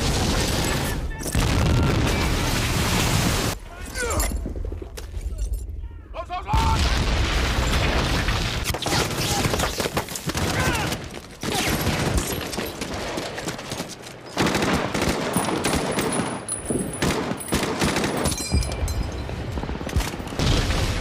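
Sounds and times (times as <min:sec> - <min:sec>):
gunfire in rapid bursts: 0:08.5 - 0:18.4.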